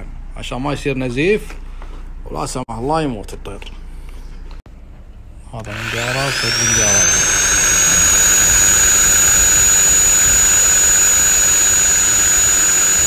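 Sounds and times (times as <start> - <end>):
rotary grinder high-pitched whine: 5.6 - 13.0.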